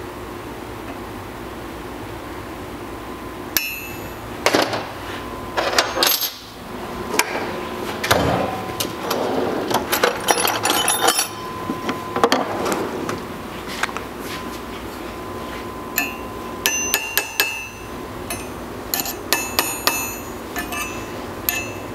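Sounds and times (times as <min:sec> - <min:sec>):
steady shop hum: 0:00.0 - 0:21.9
clinks of steel tools: 0:05.7 - 0:06.5, 0:10.0 - 0:11.6, 0:16.0 - 0:21.9.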